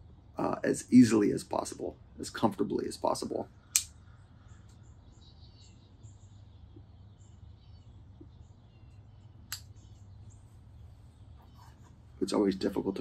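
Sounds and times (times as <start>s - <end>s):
low steady hum: 0.0s - 13.0s
faint bird chirps: 3.3s - 13.0s
sharp click: 3.7s - 4.0s, 9.5s - 9.7s.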